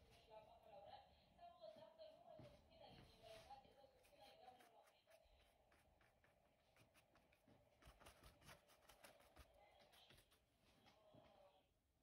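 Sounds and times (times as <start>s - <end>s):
paintbrush dabbing on fabric: 3.1s - 10.8s.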